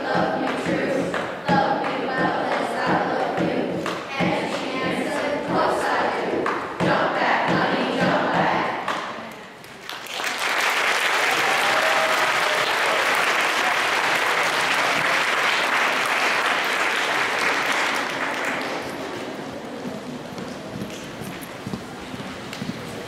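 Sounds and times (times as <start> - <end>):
audience applauding: 9.7 - 19.3.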